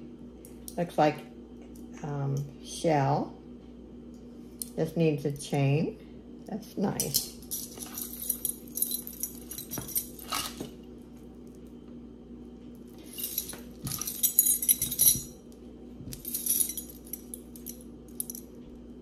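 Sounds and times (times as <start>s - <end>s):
steady low hum: 0.0s - 19.0s
jewelry jingling and clinking: 7.0s - 10.8s, 12.8s - 18.8s.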